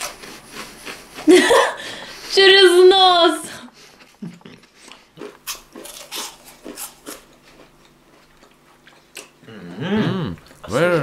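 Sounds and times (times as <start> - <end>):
crunchy chewing of cookie: 0.0 - 1.5, 3.7 - 11.0.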